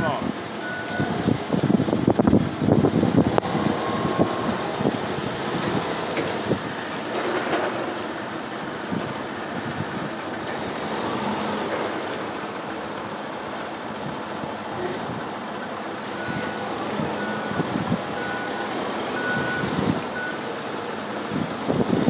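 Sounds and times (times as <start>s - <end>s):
forklift engine running: 0.0s - 22.0s
knocks and rattles: 5.5s - 8.1s.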